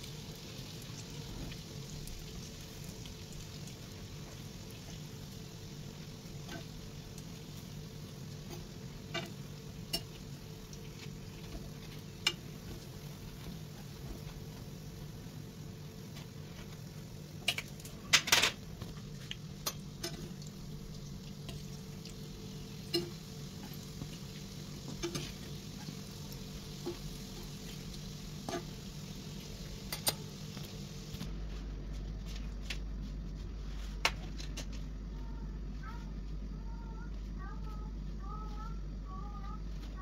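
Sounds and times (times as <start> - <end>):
doughnuts sizzling in hot oil: 0.0 - 31.3
low steady hum: 0.0 - 40.0.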